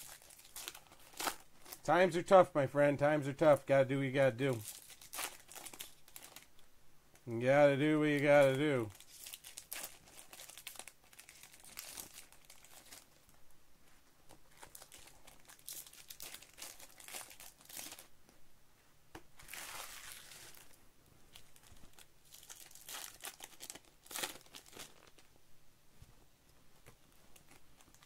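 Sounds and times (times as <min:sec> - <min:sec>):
wrapper tearing open: 0:00.0 - 0:01.8, 0:04.5 - 0:06.6, 0:08.4 - 0:13.1, 0:14.5 - 0:18.1, 0:19.4 - 0:20.8, 0:21.4 - 0:25.3, 0:27.4 - 0:28.0
plastic wrapper crinkling: 0:00.0 - 0:01.9, 0:04.4 - 0:06.6, 0:08.1 - 0:13.4, 0:14.3 - 0:18.1, 0:19.4 - 0:25.3, 0:27.1 - 0:28.0.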